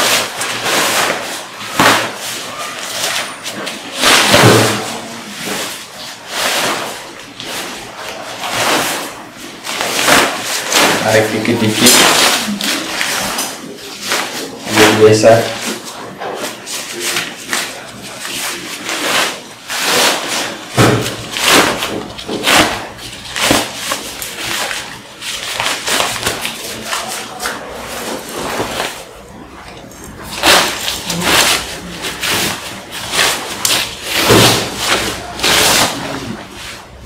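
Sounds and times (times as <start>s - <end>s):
tent fabric rustling: 0.0s - 20.7s.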